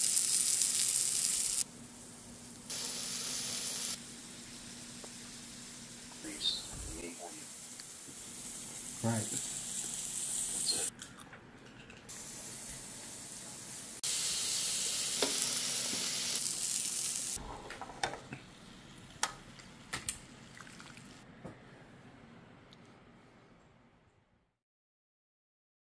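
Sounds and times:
food sizzling on grill: 0.0s - 10.9s, 12.1s - 17.4s.

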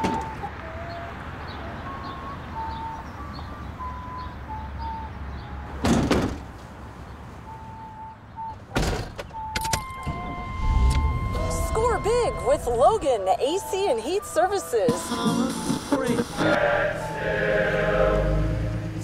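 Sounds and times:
van doors slamming: 5.8s - 6.6s, 8.7s - 11.3s
low rumble: 10.1s - 13.0s.

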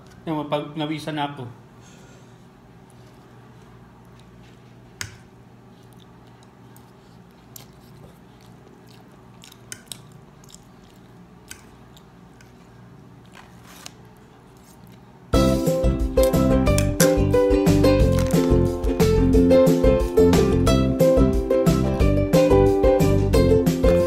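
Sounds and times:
man chewing noodles: 2.7s - 19.2s
music: 15.3s - 24.0s.

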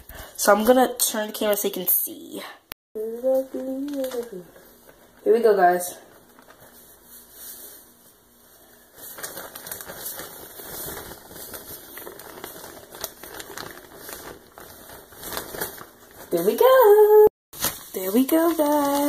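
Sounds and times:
foam beads pattering and crackling: 8.8s - 16.8s, 17.7s - 19.0s.

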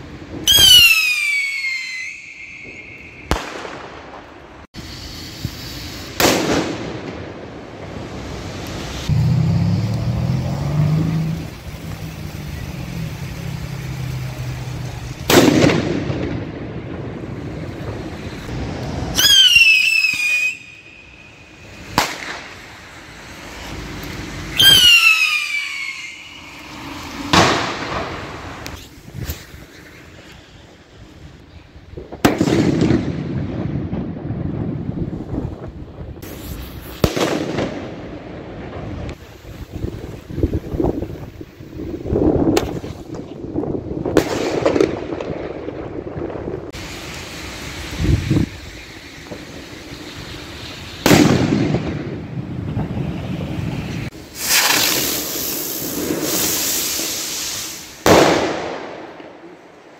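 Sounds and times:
firework blast with crackling: 0.0s - 59.9s
firework whistle: 0.4s - 4.1s, 4.8s - 7.4s, 17.5s - 31.5s, 46.8s - 59.2s
firework bang: 0.4s - 4.4s, 6.1s - 7.5s, 15.2s - 21.2s, 21.8s - 22.6s, 24.6s - 29.6s, 32.0s - 39.2s, 42.4s - 43.4s, 44.0s - 46.5s, 51.0s - 59.4s.

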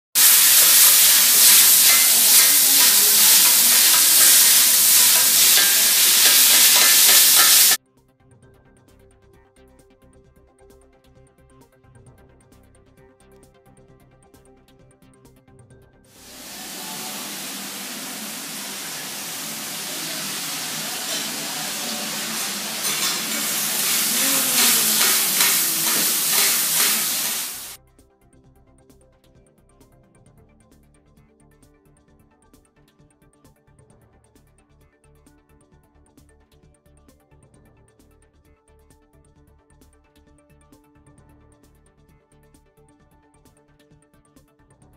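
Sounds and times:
food sizzling on a griddle: 0.2s - 7.8s, 16.2s - 27.8s
metal spatulas scraping a griddle: 0.2s - 7.8s, 19.8s - 27.7s.

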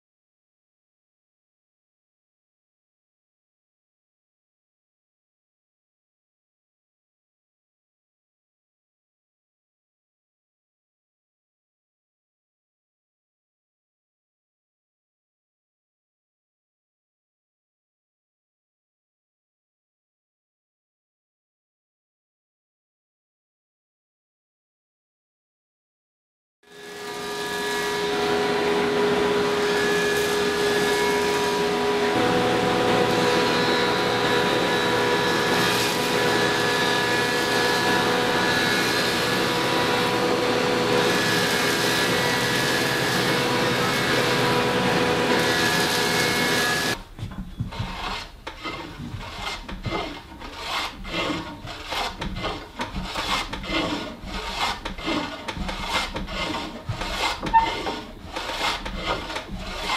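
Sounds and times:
power jointer humming: 26.7s - 47.0s
hand plane shaving wood: 26.7s - 59.9s.

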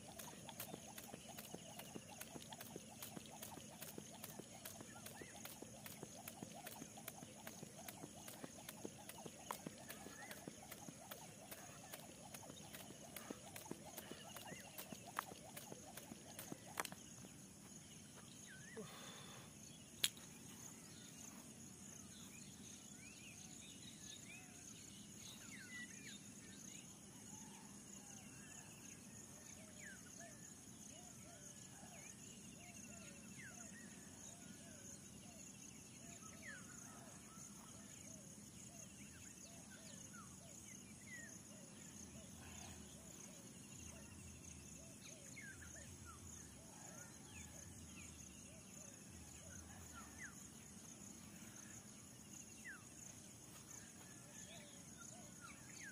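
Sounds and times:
high insect buzz: 0.0s - 17.3s
bird chirps: 0.0s - 21.3s.

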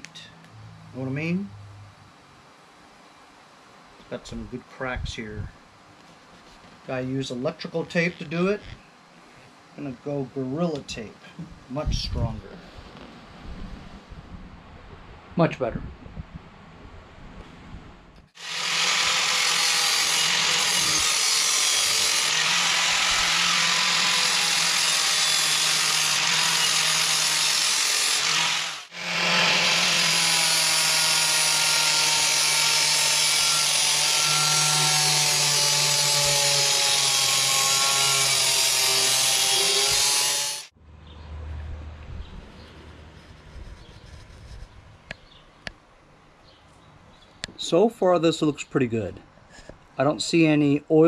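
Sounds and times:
angle grinder grinding metal: 18.4s - 40.7s.

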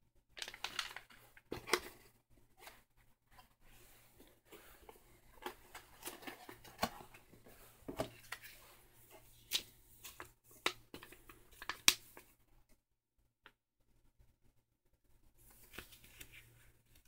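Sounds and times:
packaging rustling: 0.4s - 2.0s.

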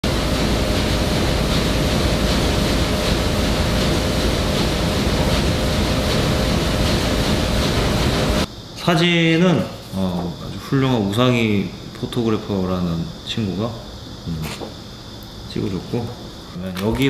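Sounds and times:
printing press running: 0.0s - 8.5s.

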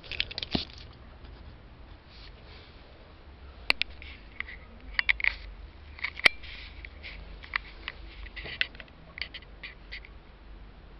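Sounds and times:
scratchy rustles: 3.8s - 10.1s.

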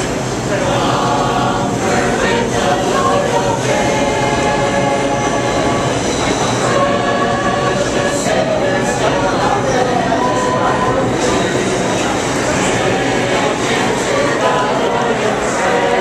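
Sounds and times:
choir singing sustained notes: 0.0s - 16.0s
subway train rumble: 0.0s - 16.0s.

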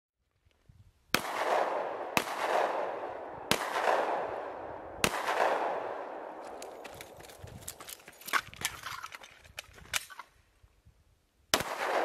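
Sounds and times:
pistol shots with echo: 1.2s - 6.4s, 11.5s - 12.0s.

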